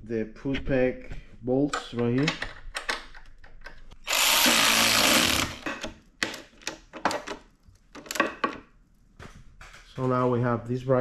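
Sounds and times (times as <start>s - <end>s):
cordless drill driving bolt: 4.0s - 5.9s.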